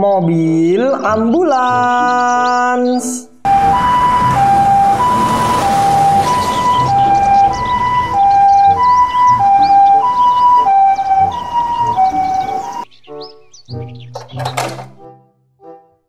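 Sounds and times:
two-tone ambulance siren: 0:03.4 - 0:13.0
ambulance engine and road noise: 0:03.4 - 0:15.1.

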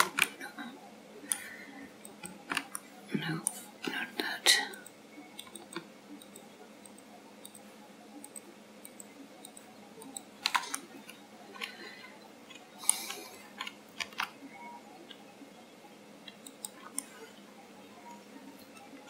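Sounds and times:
mouse buttons clicking: 0:04.7 - 0:11.8, 0:12.5 - 0:14.4, 0:16.2 - 0:17.2.

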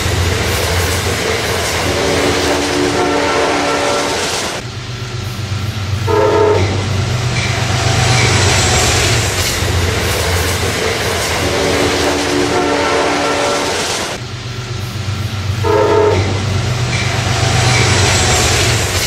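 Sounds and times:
train engine and wheels rumbling: 0:00.0 - 0:19.0
locomotive horn: 0:02.0 - 0:04.6, 0:06.1 - 0:07.0, 0:11.6 - 0:14.2, 0:15.6 - 0:16.5.

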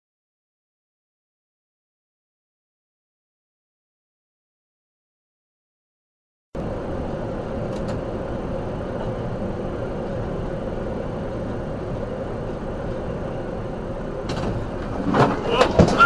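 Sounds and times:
car road and engine noise: 0:06.6 - 0:16.0.

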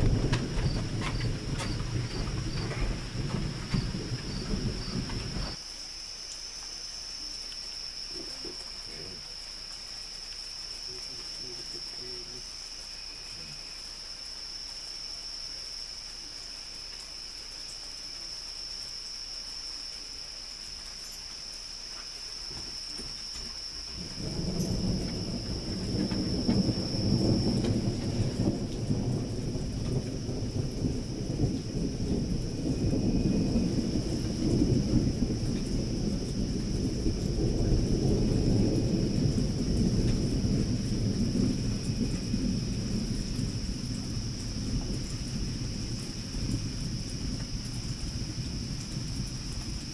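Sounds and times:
thunder rumbling: 0:00.0 - 0:05.6, 0:22.5 - 0:49.9
insects chirring: 0:00.0 - 0:49.9.

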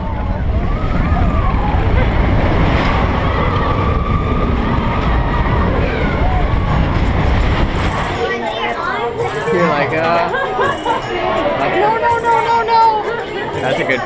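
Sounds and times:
wind rushing over microphone: 0:00.0 - 0:08.3
roller coaster train rumbling: 0:00.0 - 0:14.0.

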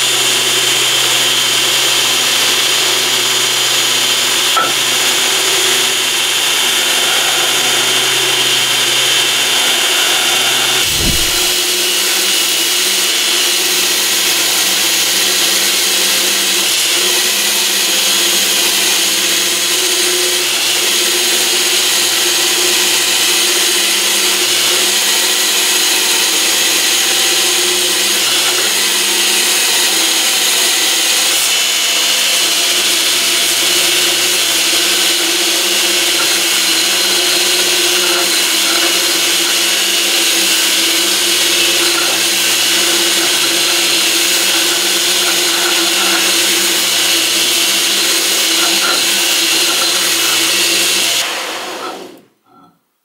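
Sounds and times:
belt grinder hissing: 0:00.0 - 0:52.3
motor hum: 0:04.3 - 0:11.8.

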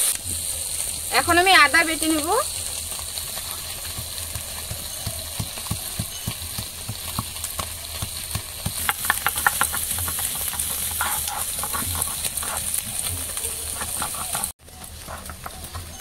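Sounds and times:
pestle scraping on stone slab: 0:03.3 - 0:16.0
stone pestle knocking: 0:04.0 - 0:12.3.

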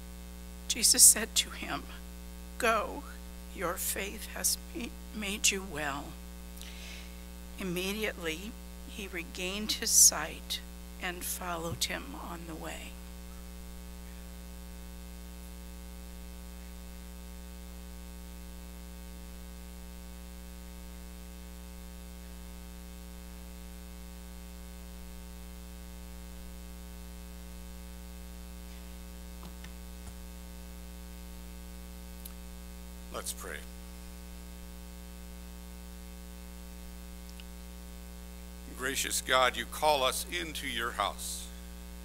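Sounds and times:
electrical mains hum: 0:00.0 - 0:42.0
faint clicks: 0:37.2 - 0:37.6.

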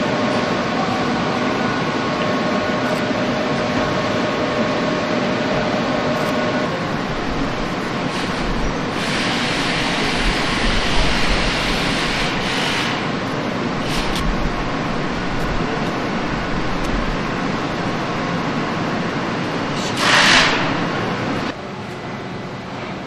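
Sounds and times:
machinery low rumble: 0:00.0 - 0:23.0
loud hiss: 0:06.7 - 0:21.5.

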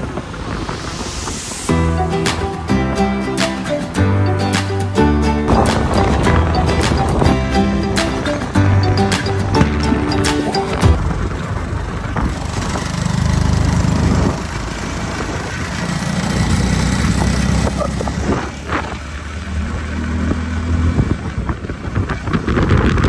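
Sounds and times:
motorcycle engine running: 0:05.5 - 0:23.0.

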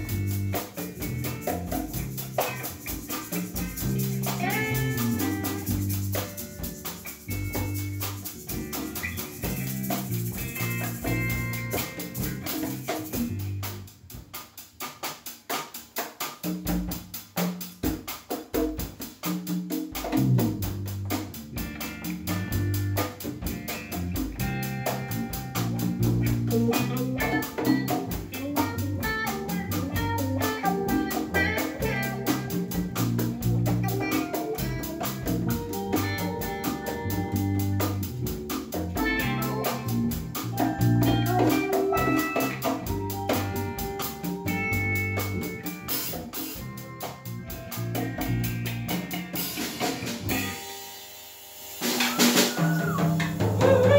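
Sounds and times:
electric bass: 0:00.0 - 0:14.3, 0:20.0 - 0:50.7, 0:52.6 - 0:53.9
drum beat: 0:00.0 - 0:50.8, 0:51.7 - 0:53.9
electric guitar: 0:00.0 - 0:53.9.

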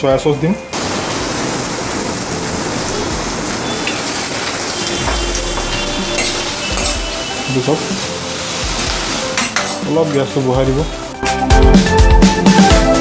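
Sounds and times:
vegetables sizzling in oil: 0:00.7 - 0:11.2
spatula scraping pan: 0:04.9 - 0:10.4.

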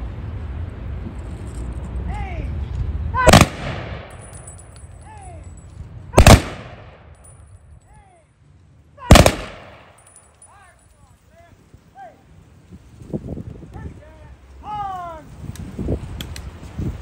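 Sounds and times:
rifle volleys: 0:03.2 - 0:04.8, 0:06.2 - 0:07.2, 0:09.1 - 0:10.2.

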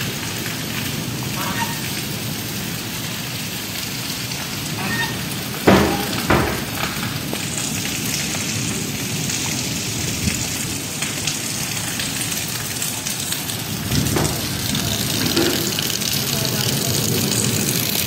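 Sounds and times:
heavy rain splashing on puddles: 0:00.0 - 0:18.0
loud bumps: 0:05.6 - 0:07.4.

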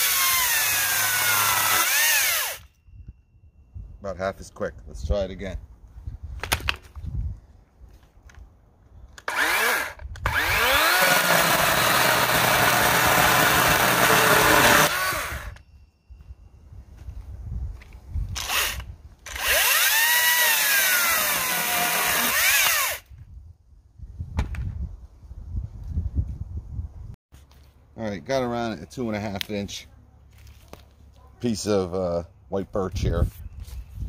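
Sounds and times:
cordless chainsaw whining: 0:00.0 - 0:02.7, 0:09.2 - 0:15.6, 0:18.4 - 0:23.0.

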